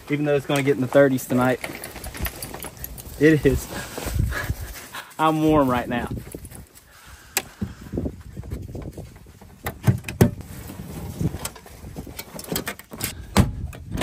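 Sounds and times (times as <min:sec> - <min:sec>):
metal toolbox clanks and knocks: 0:09.6 - 0:10.4, 0:12.2 - 0:14.0.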